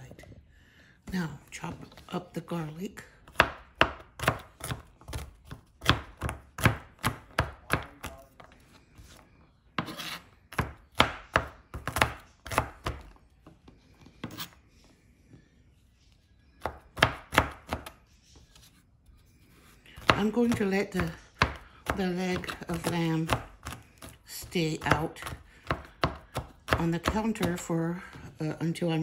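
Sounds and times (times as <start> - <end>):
knife chopping on cutting board: 3.3 - 8.2, 9.8 - 13.1, 16.6 - 18.0, 20.0 - 27.7.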